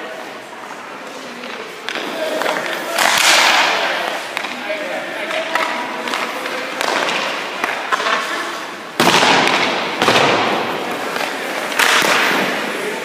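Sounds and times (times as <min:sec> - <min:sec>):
skate blades scraping ice: 0:10.5 - 0:13.0.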